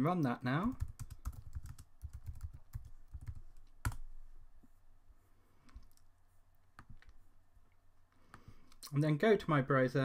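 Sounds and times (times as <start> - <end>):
keyboard typing: 0.6 - 4.1.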